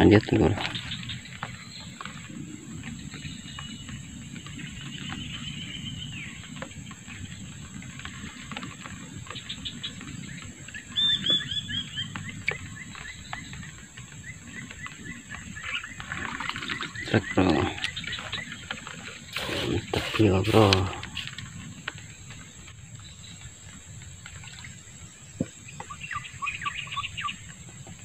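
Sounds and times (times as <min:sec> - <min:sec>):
high insect drone: 0:00.0 - 0:28.0.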